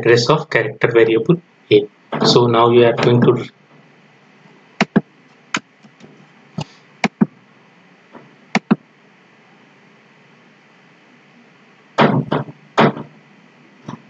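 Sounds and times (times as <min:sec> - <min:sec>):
keyboard keystrokes: 0:08.6 - 0:08.8.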